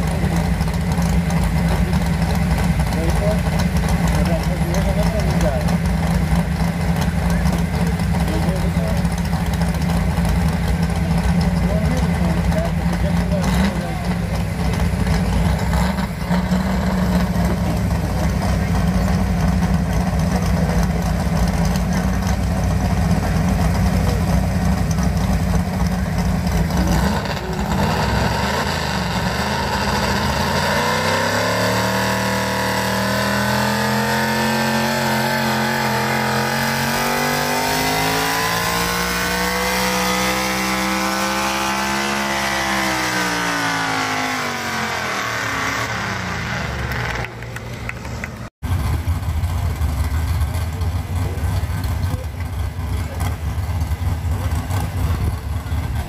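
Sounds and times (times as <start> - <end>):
tractor engine revving: 0.0 - 56.0.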